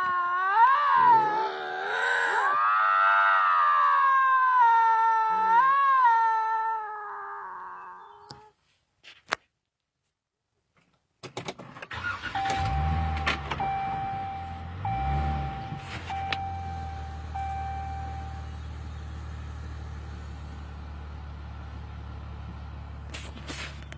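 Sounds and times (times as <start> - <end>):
electronic warning chime: 12.4 - 18.5
car engine running: 12.4 - 23.9.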